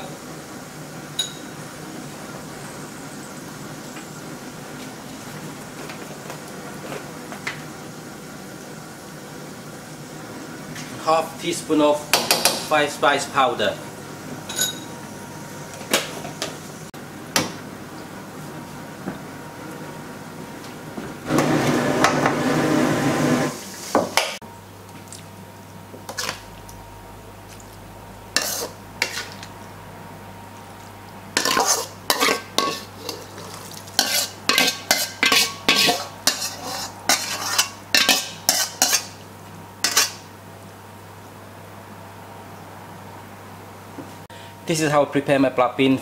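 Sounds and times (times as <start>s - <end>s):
ladle scraping beans frying in wok: 28.3s - 29.6s, 31.3s - 39.2s, 39.8s - 40.3s.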